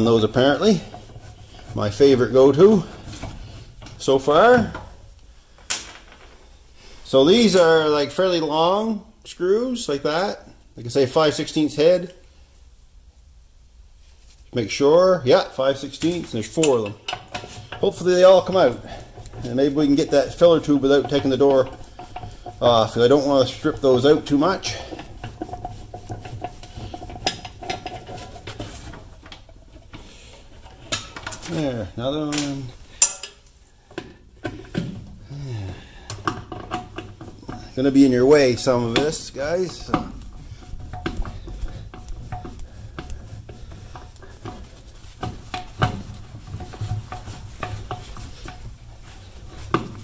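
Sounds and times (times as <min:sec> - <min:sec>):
gloved hands rubbing: 0:00.0 - 0:04.1, 0:15.8 - 0:33.9, 0:36.9 - 0:50.0
metallic clicks and scrapes: 0:15.6 - 0:35.1, 0:36.1 - 0:50.0.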